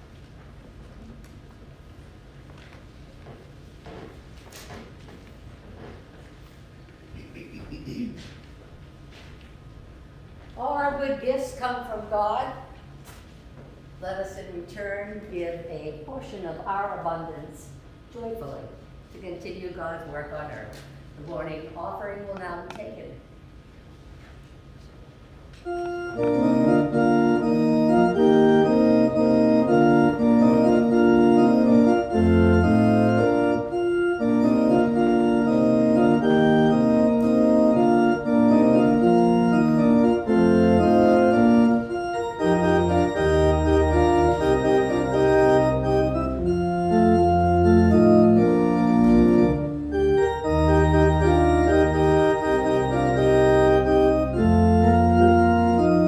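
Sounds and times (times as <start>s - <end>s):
organ playing slow chords: 25.6s - 56.0s.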